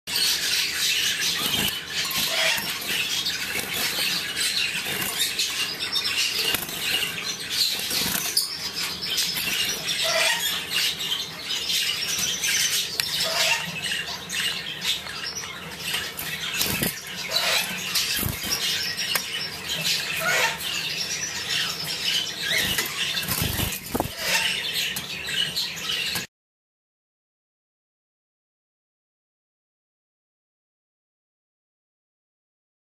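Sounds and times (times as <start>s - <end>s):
bird twittering song: 0.1s - 26.3s.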